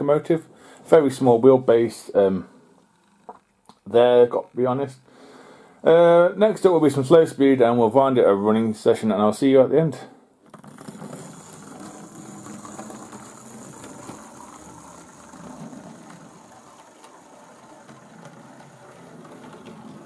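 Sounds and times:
model train motor whirring: 10.5 - 20.0.

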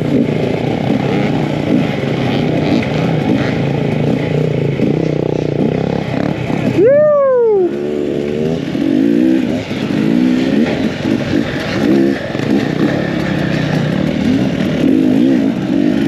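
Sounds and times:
two-stroke dirt bike engine revving: 0.0 - 16.0.

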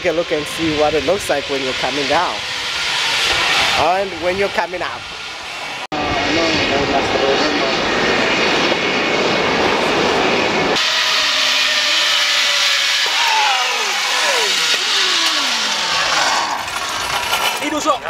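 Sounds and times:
zip line trolley on steel cable: 0.0 - 5.0, 10.7 - 18.0
whining hiss of trolley: 9.2 - 17.0.

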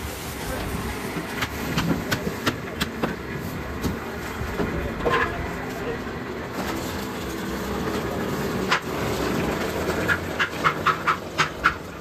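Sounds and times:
sugarcane mill rumbling: 0.0 - 12.0.

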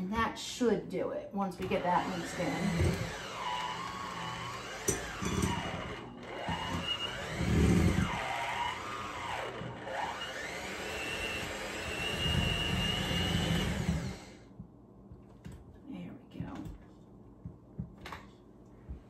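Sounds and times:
electric hand mixer whining: 1.6 - 14.5.

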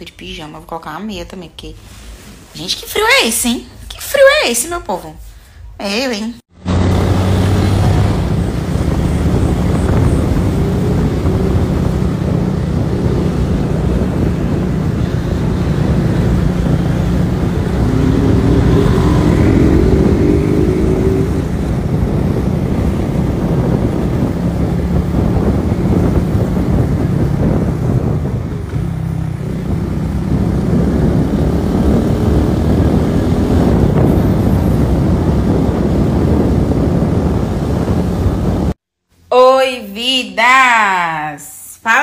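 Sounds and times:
faint rising engine note: 6.6 - 38.0
motorcycle engine humming: 6.6 - 38.8
wind noise on microphone: 6.6 - 38.8.

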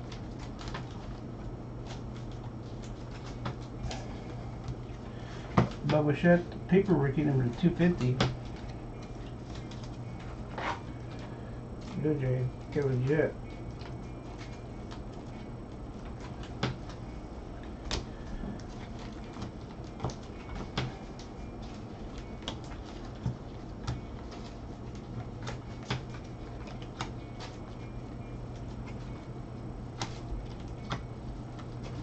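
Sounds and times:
steady low hum: 0.0 - 32.0
cards clicking while flipped: 17.7 - 27.9, 30.0 - 32.0.

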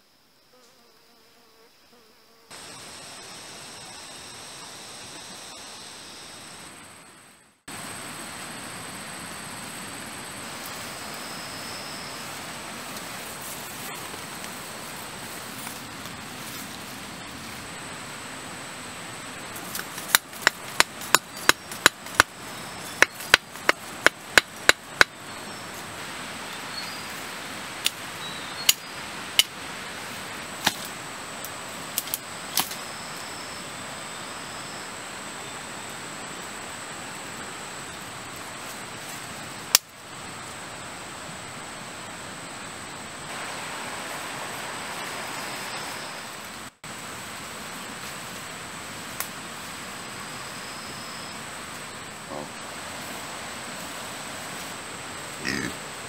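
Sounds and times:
steady forest hiss: 0.0 - 56.0
knife chopping into soil: 19.6 - 22.3.

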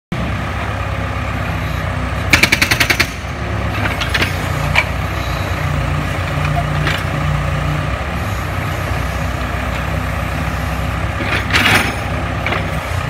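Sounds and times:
backhoe engine running: 0.1 - 13.0
hydraulic breaker hammering concrete: 2.3 - 3.3.

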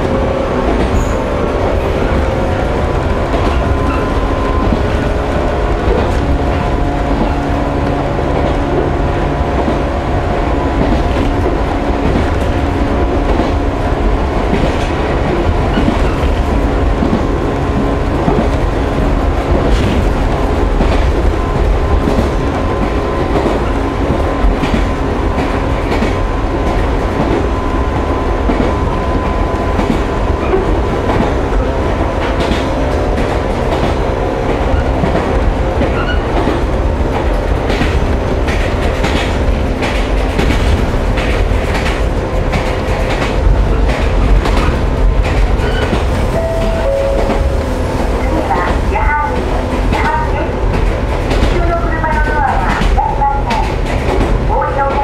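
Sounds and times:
train motors humming: 0.0 - 55.0
wheels clicking over rail joints: 28.4 - 55.0.

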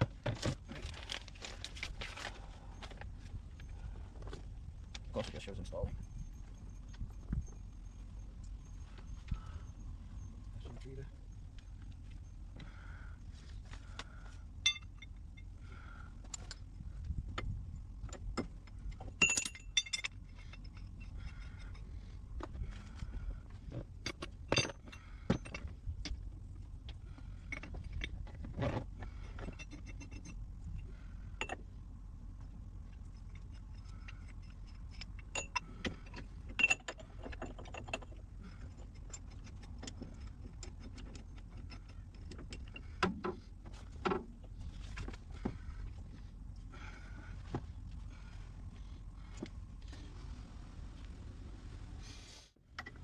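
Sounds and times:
low steady hum: 0.0 - 53.0
metal clinks and rattles: 0.4 - 12.6, 14.6 - 15.6, 16.2 - 23.0, 23.6 - 31.7, 32.4 - 46.1.

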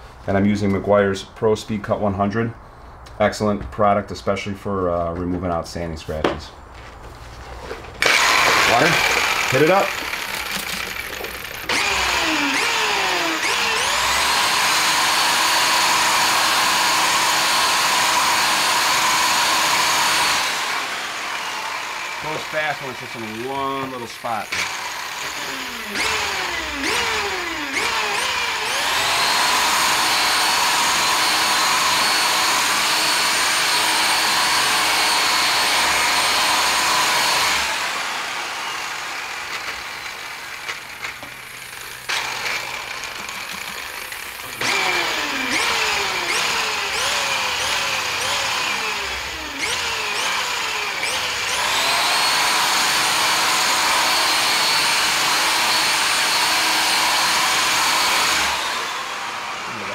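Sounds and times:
rotary buffer whining: 8.0 - 15.4.

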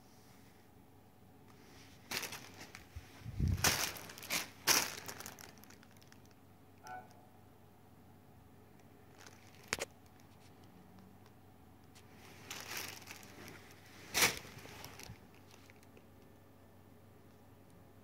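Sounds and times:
bath mat rustling on carpet: 1.6 - 5.5.

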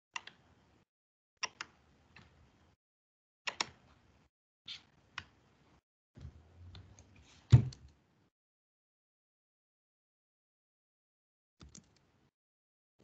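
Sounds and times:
computer mouse and keyboard clicks: 11.6 - 12.1.

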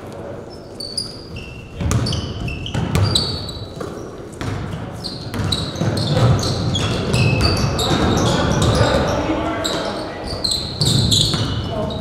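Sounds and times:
sneakers squeaking on hardwood: 0.5 - 12.0
basketball bouncing: 1.8 - 8.9, 10.7 - 12.0.

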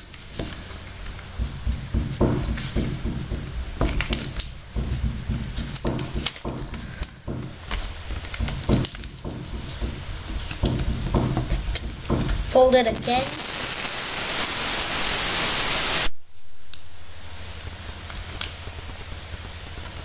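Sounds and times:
paper being folded and creased: 2.4 - 13.4.

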